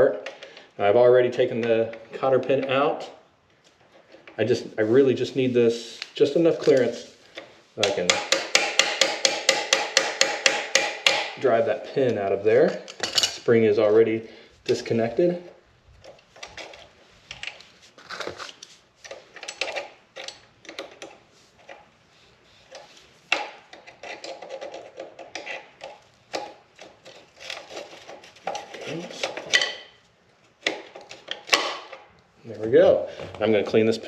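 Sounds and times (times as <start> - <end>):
metal tools clinking and scraping: 12.6 - 13.5, 16.0 - 21.9, 23.6 - 30.0.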